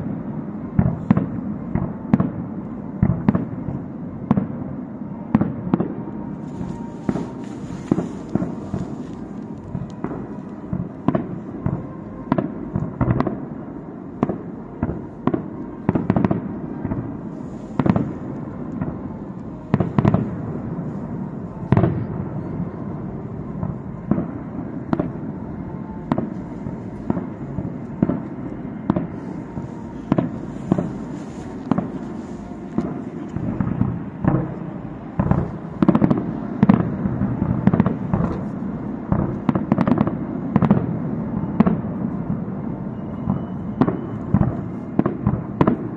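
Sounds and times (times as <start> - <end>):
low rumble of reports: 0.0 - 45.9.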